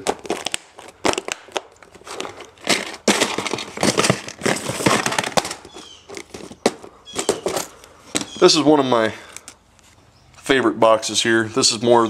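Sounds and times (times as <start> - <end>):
plastic box clicking and rustling: 0.0 - 8.4.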